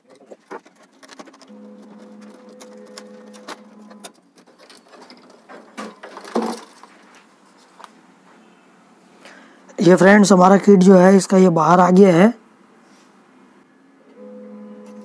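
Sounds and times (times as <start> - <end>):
faint steady hum: 11.0 - 15.0.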